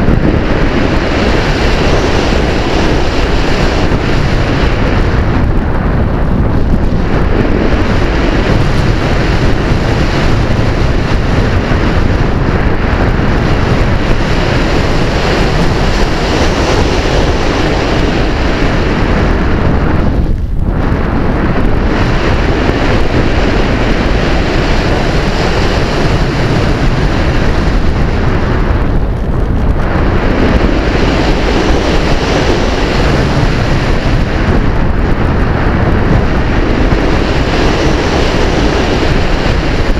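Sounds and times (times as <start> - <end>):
wind rushing over microphone: 0.0 - 39.9.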